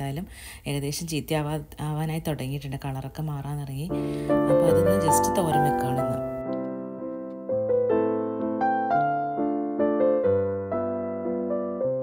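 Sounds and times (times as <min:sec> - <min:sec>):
piano music: 0:03.9 - 0:12.0.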